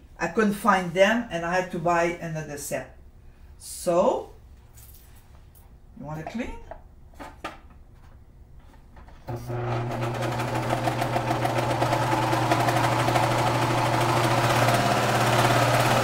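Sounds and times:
serger running: 0:09.3 - 0:16.0.

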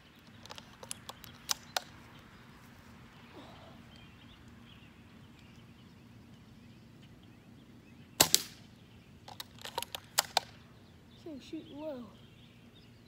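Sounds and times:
airsoft rifle shot: 0:08.2 - 0:08.6.

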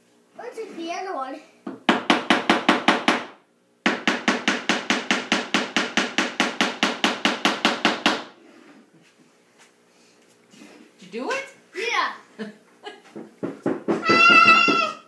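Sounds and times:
hammer tapping a nail: 0:01.7 - 0:08.3.

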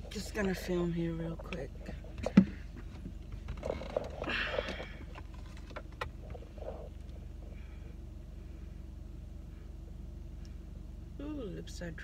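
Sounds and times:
clicks and rustling in car seat: 0:00.0 - 0:07.6
car engine idling: 0:00.0 - 0:12.0.

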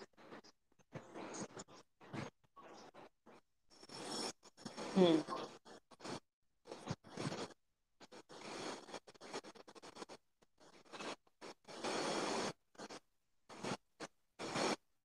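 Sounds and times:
scratchy rubbing on microphone: 0:00.1 - 0:14.9.

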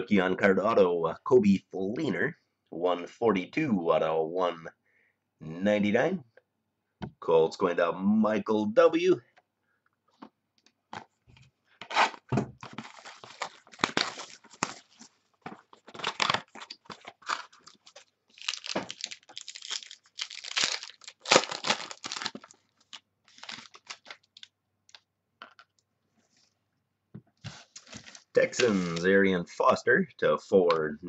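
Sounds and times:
plastic wrapping tearing and crinkling: 0:11.9 - 0:25.0, 0:27.6 - 0:29.1.

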